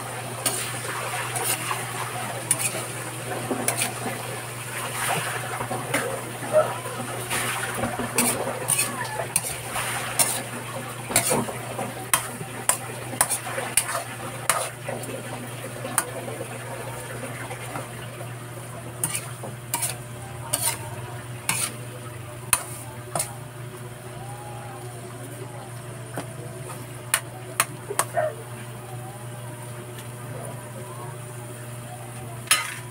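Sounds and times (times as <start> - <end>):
oil sizzling: 0.0 - 28.8
metal spoon scraping a wok: 0.4 - 0.7, 1.3 - 1.9, 2.5 - 2.9, 3.6 - 4.0, 8.1 - 10.5, 11.1 - 11.5, 12.1 - 14.8, 19.0 - 21.8, 22.5 - 23.4, 32.5 - 32.9.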